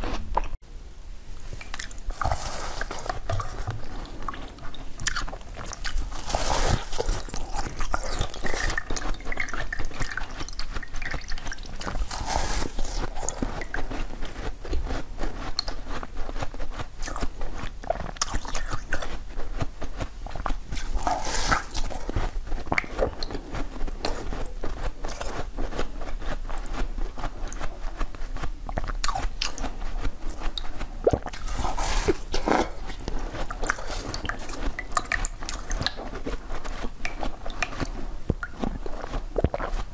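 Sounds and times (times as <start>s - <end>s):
crunching frozen ice: 5.0s - 9.6s, 10.4s - 19.0s, 20.4s - 27.8s, 29.0s - 38.0s.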